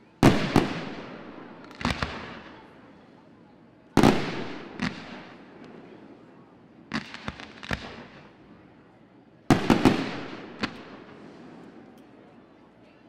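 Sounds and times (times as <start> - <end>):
fireworks bangs echoing: 0.2 - 2.8, 4.0 - 8.5, 9.5 - 12.0.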